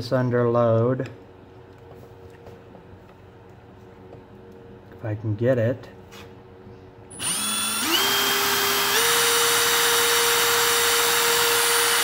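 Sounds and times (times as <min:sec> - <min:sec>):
impact driver motor whining: 0:07.1 - 0:12.0.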